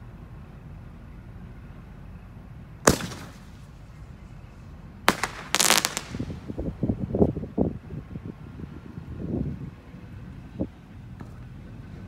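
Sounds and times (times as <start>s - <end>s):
crackling pops: 2.9s - 3.6s, 5.1s - 6.4s
firework shell bursting: 2.9s - 3.6s, 5.1s - 6.5s
firework launch bang: 2.9s - 3.7s, 5.1s - 6.5s.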